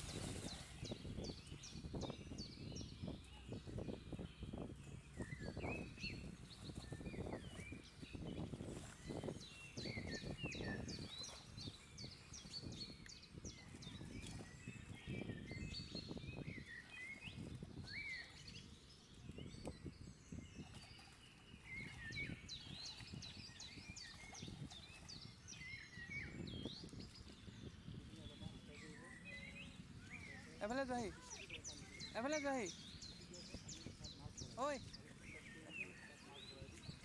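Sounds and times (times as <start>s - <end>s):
water sloshing from wading: 0.0s - 1.8s, 5.8s - 15.6s, 20.5s - 37.0s
small birds chirping: 0.0s - 37.0s.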